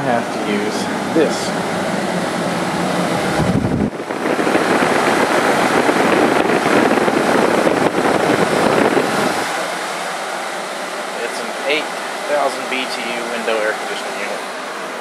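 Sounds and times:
window air conditioner running: 0.0s - 15.0s
low rumble: 0.8s - 9.5s
wind buffeting microphone: 0.9s - 9.6s.

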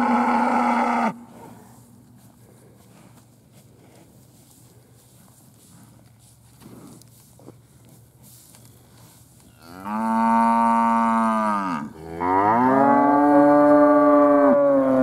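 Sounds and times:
cattle mooing: 0.0s - 1.2s, 9.6s - 15.0s.

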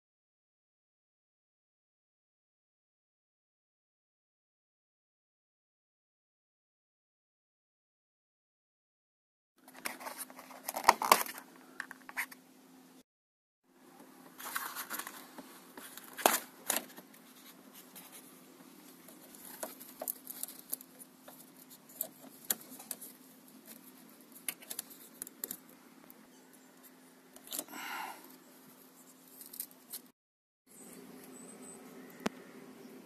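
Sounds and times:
faint steady hum: 13.7s - 30.1s.

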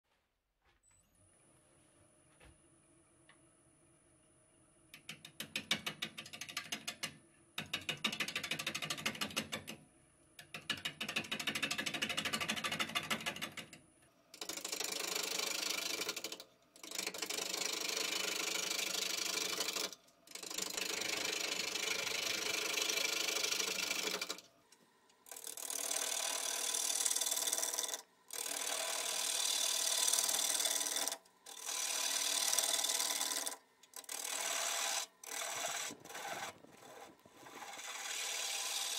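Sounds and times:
lathe gouge cutting wood: 25.3s - 38.9s.

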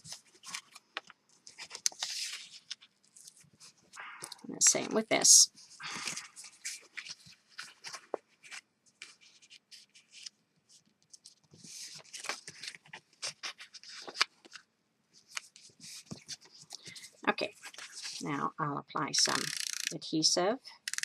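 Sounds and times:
paper crinkling and rustling: 0.0s - 4.0s, 5.6s - 18.2s.

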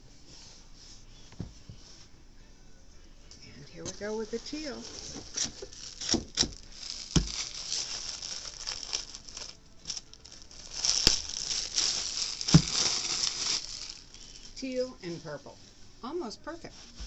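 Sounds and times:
plastic wrapping crinkling: 3.9s - 14.6s.

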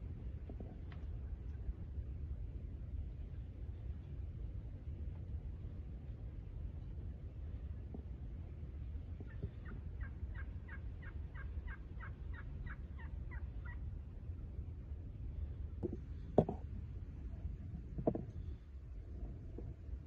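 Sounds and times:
turkeys calling: 9.2s - 13.8s.

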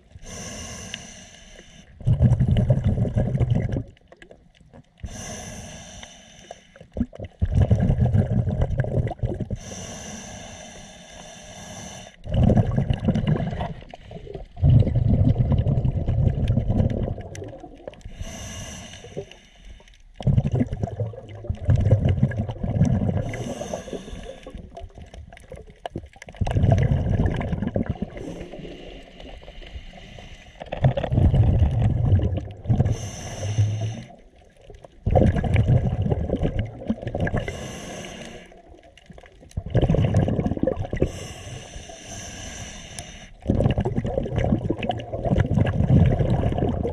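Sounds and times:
regulator inhale hiss: 0.1s - 2.0s, 5.0s - 6.8s, 9.5s - 12.2s, 18.0s - 20.0s, 23.2s - 24.7s, 28.2s - 30.7s, 32.9s - 34.4s, 37.4s - 38.8s, 41.0s - 43.4s
diver exhaling bubbles: 1.9s - 4.4s, 6.8s - 10.0s, 12.2s - 19.3s, 20.2s - 29.5s, 30.1s - 42.6s, 43.4s - 46.9s.

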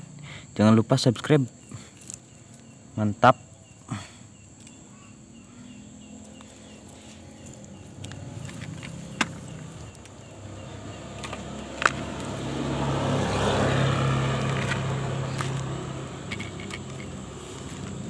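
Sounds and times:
vehicle passing by: 5.6s - 18.0s.

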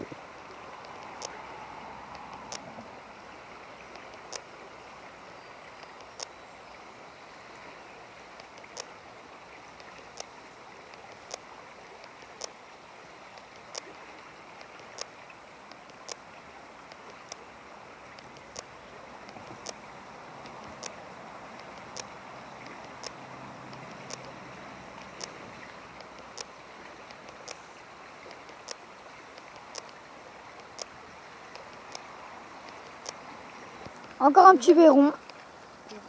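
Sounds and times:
river current rushing: 0.0s - 36.0s
sharp ticks: 0.8s - 1.4s, 3.9s - 4.5s, 5.8s - 6.4s, 9.8s - 12.6s, 14.6s - 16.2s, 18.1s - 24.4s, 25.0s - 25.4s, 26.0s - 27.6s, 28.2s - 33.2s.

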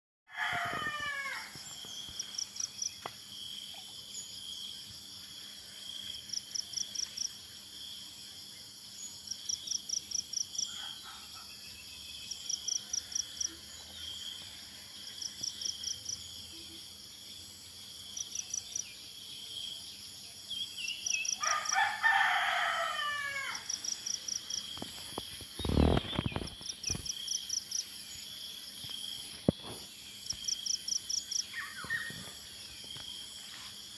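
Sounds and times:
rooster crowing: 0.3s - 1.6s, 21.4s - 23.8s
high insect drone: 0.4s - 33.9s.

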